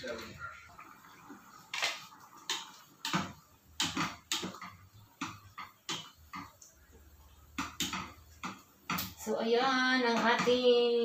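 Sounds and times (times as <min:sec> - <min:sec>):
spatula knocking against pan: 0:10.0 - 0:10.8.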